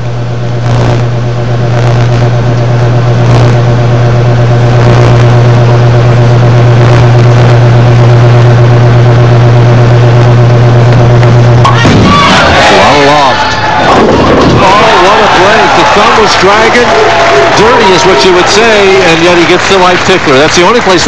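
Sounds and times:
loud low hum: 0.0 - 21.0.

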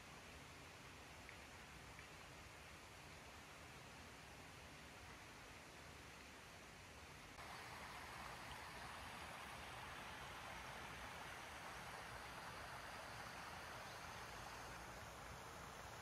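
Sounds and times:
flowing water rushing: 6.7 - 16.0.

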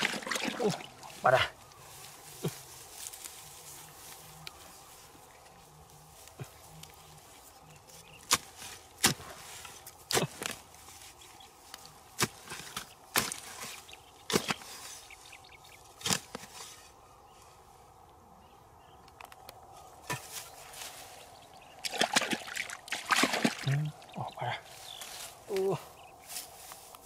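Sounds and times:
spade chopping into earth: 8.2 - 9.4, 10.1 - 10.6, 12.2 - 14.8, 16.0 - 16.6.

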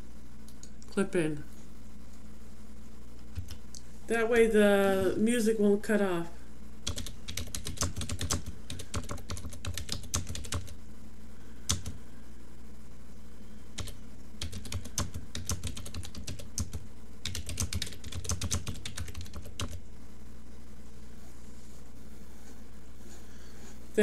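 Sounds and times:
typing on a keyboard: 6.9 - 10.8, 11.7 - 12.0, 13.8 - 19.8.

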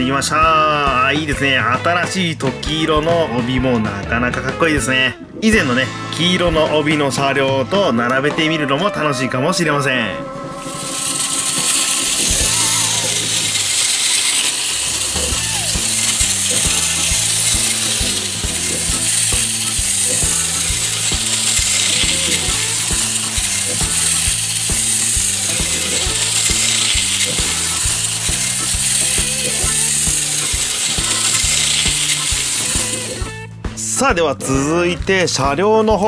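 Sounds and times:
toy train motor whirring: 10.6 - 33.5.

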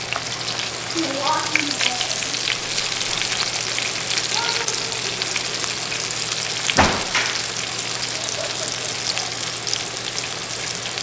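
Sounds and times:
meat frying in oil: 0.0 - 11.0
knock: 6.8 - 7.4.

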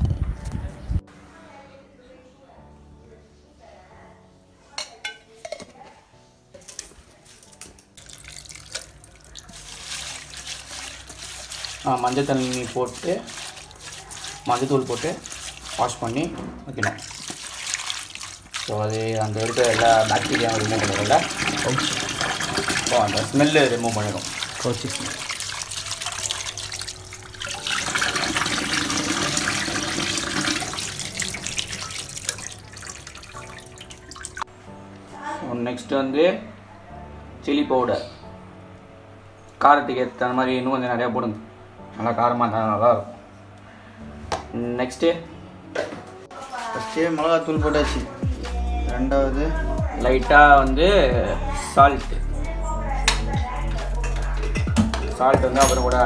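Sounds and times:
hand swishing in water: 9.4 - 16.4
light clinks against bowl: 55.5 - 56.0.

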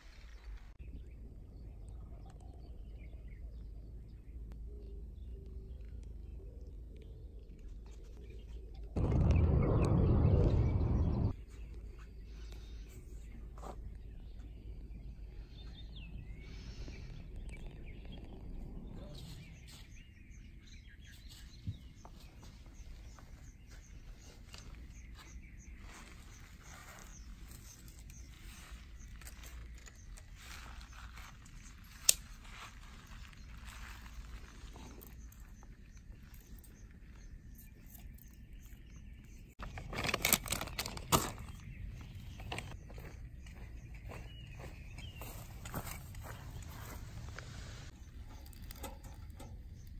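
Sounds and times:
faint outdoor background: 0.0 - 49.9
birds chirping: 0.8 - 49.9
low background rumble: 8.9 - 11.4
twigs snapping: 29.1 - 32.8
plastic bag crinkling: 39.6 - 41.3.

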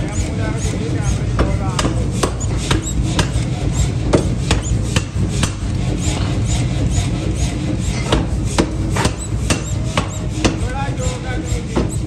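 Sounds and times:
sharp metallic clicks: 0.0 - 7.1
machinery low drone: 0.0 - 12.0.

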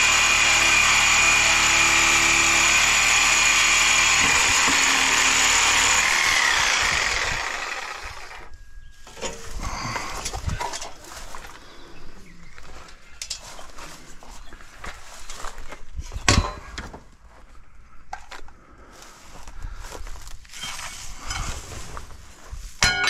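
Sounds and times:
power tool whining: 0.0 - 8.5.

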